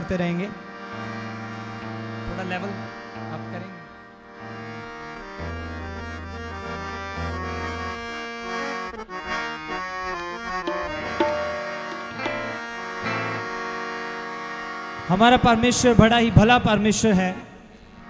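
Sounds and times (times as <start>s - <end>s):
harmonium playing chords: 0.0s - 18.0s
hand drum strokes: 10.6s - 12.7s.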